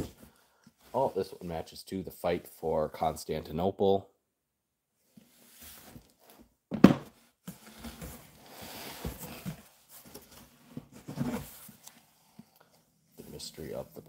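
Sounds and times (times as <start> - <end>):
book thumping down: 6.7 - 7.2.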